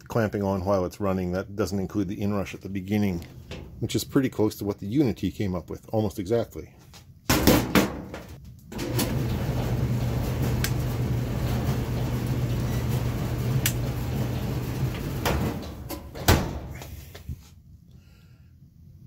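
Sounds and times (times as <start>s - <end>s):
clothes dryer humming: 8.7s - 17.5s.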